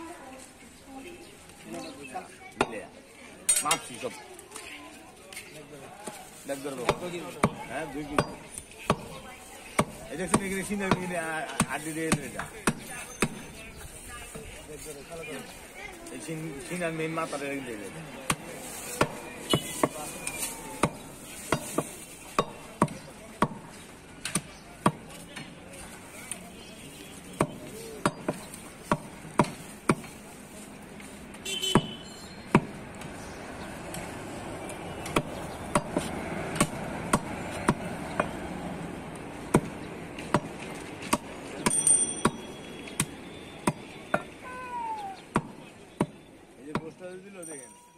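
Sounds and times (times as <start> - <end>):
cleaver chopping on wooden block: 6.8 - 13.4, 20.8 - 25.1, 27.4 - 30.2, 31.7 - 32.8, 35.0 - 38.4, 39.5 - 42.4.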